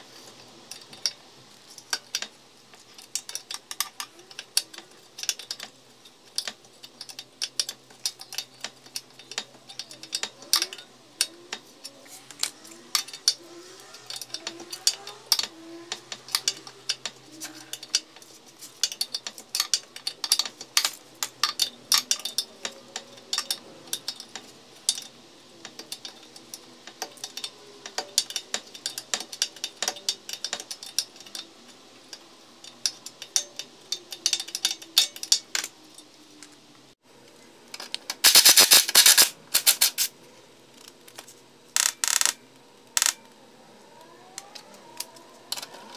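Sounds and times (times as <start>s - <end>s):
wrench clicking on metal nut: 38.2s - 40.1s, 43.0s - 43.2s.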